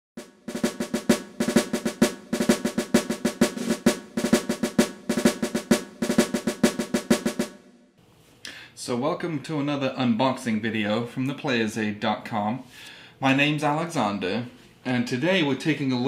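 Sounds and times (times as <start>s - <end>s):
snare drum rolls: 0.2s - 7.7s.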